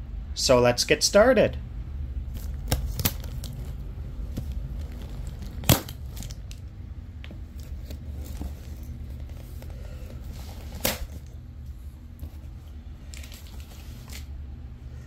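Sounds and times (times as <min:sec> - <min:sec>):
packing material crinkling and tearing: 0:02.3 - 0:06.7, 0:07.4 - 0:11.4, 0:12.2 - 0:14.3.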